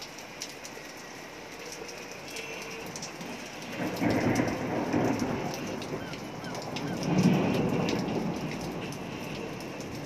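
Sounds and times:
steady rain: 0.0s - 10.0s
water drips ticking: 0.0s - 10.0s
low roll of thunder: 3.6s - 10.0s.

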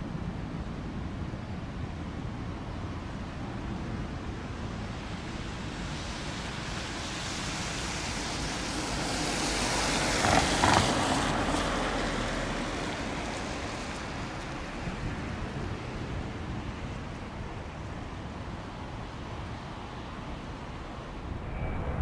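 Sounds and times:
jet engines roaring: 20.2s - 22.0s.

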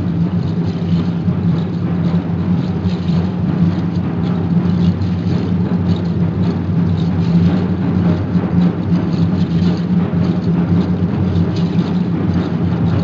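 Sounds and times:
large drum beaten fast: 0.0s - 13.0s.

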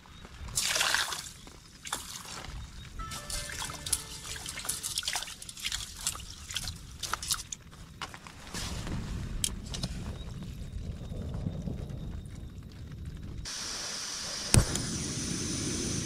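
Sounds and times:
small splashes and clicks: 3.9s - 7.6s
water sloshing in a vessel: 4.2s - 7.6s.

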